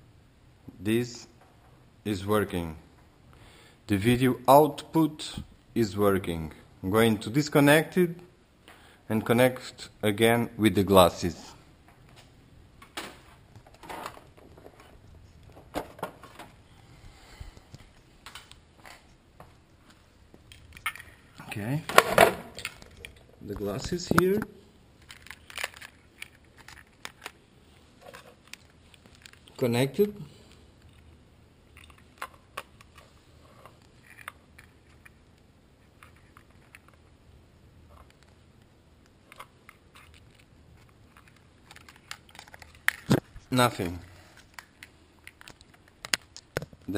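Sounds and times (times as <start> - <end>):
soft rustling of cables: 11.2 - 46.9
cable handling clicks and knocks: 20.3 - 27.4, 39.0 - 46.9.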